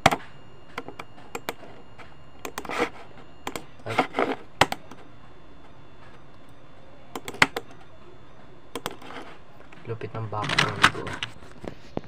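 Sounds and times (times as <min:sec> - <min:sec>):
keyboard and mouse clicks: 0:02.4 - 0:03.7, 0:07.1 - 0:07.8, 0:08.7 - 0:09.2.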